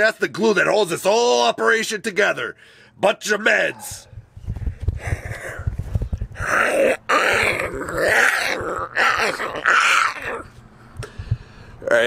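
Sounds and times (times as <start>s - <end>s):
man growling and groaning: 6.4s - 10.5s.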